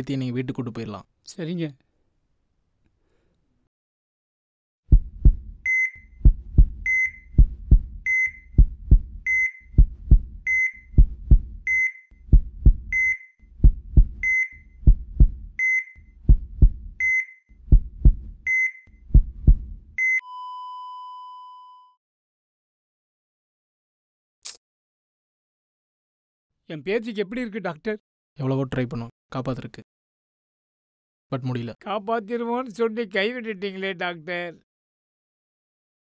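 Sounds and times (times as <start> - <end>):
heartbeat thumping: 4.9 - 20.0
heart monitor beeps: 5.6 - 12.1, 12.7 - 15.0, 15.6 - 17.4, 18.5 - 18.9, 20.0 - 22.0.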